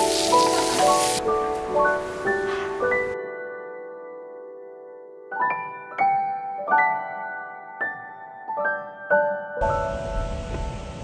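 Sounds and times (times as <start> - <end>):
meat sizzling on hot griddle: 0.0 - 1.2
rising piano melody: 0.0 - 11.0.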